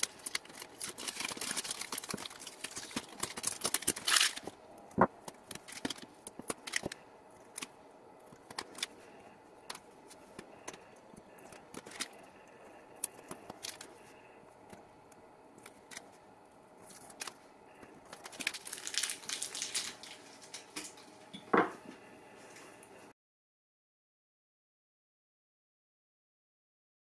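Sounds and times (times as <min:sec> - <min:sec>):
vinyl crinkling: 0:00.0 - 0:14.9, 0:15.5 - 0:21.3.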